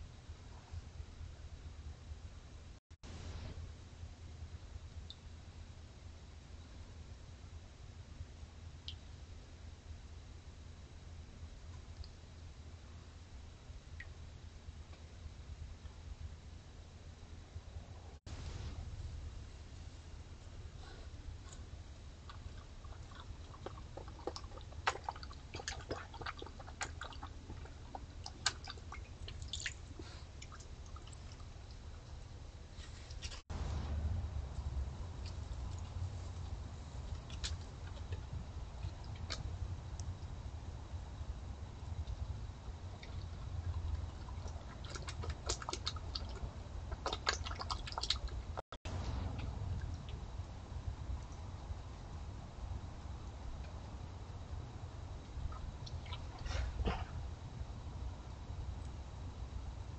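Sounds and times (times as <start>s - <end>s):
steady low hum: 0.0s - 59.9s
small wet clicks and splashes: 22.2s - 32.4s, 35.2s - 40.4s, 42.0s - 48.6s, 55.2s - 56.5s.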